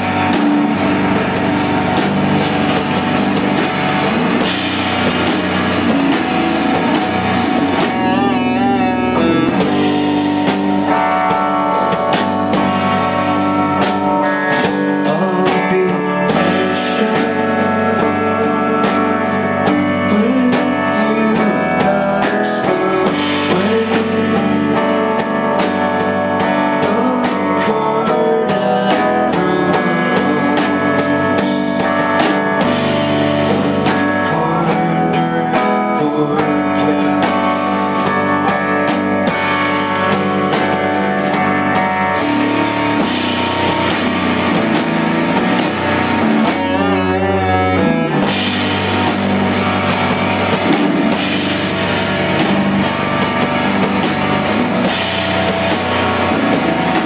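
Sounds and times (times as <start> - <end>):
live rock band playing: 0.0 - 57.0.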